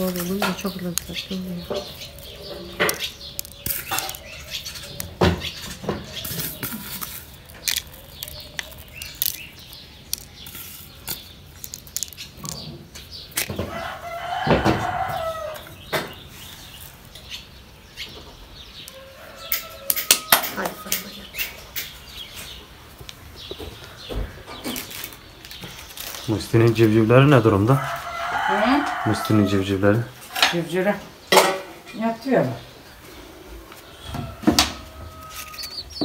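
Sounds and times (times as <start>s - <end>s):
chickens clucking: 0.0s - 11.4s, 12.0s - 36.0s
rooster crowing: 13.6s - 15.8s, 18.9s - 21.2s, 27.6s - 29.8s, 34.0s - 36.0s.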